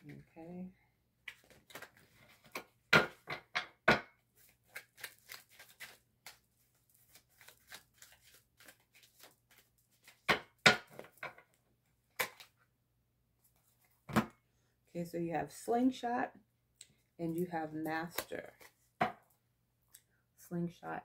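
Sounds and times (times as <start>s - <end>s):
cards being shuffled: 1.2s - 2.8s, 4.4s - 10.3s
cards snapping: 4.6s - 6.4s.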